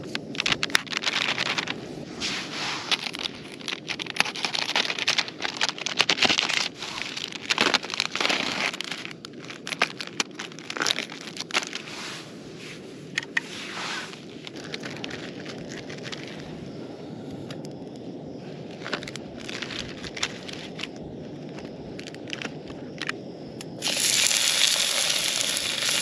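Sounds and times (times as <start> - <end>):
plastic film crinkling and tearing: 0.0 - 1.8, 2.9 - 11.9, 14.4 - 16.4, 23.8 - 26.0.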